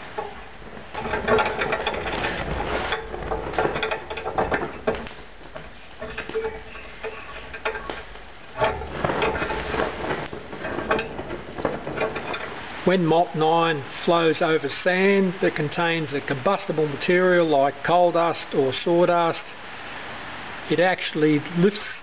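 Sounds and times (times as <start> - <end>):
molten metal crackling and sizzling: 0.0 - 15.5.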